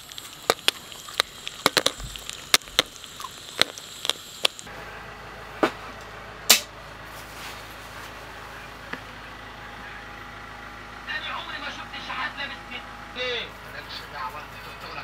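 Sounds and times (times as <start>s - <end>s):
popcorn popping in metal pot: 0.0s - 4.7s.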